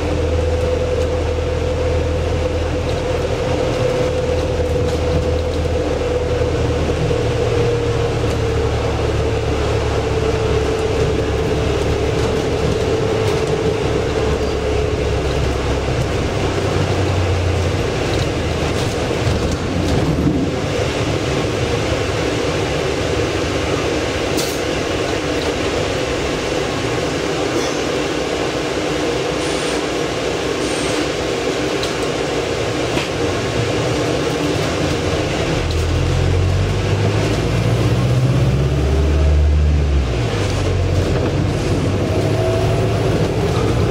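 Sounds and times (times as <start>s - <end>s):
low bus drone: 0.0s - 43.9s.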